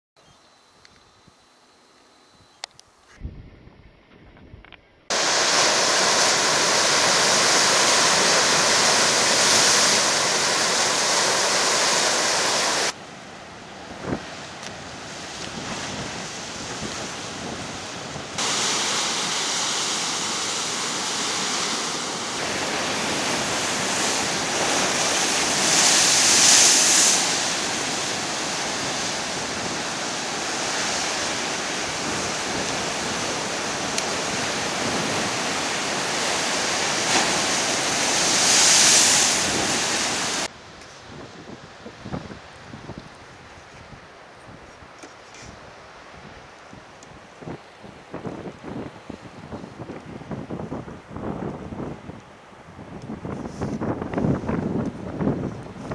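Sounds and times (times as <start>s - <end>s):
wind buffeting the microphone: 3.1s - 13.0s, 13.7s - 20.4s, 21.1s - 55.9s
surf breaking against rocks: 5.1s - 13.0s, 14.0s - 40.5s.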